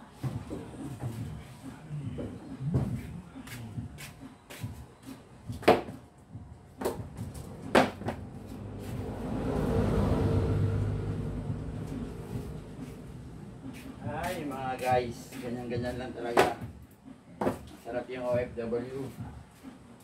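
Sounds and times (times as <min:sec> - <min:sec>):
low drone: 0:08.4 - 0:13.7.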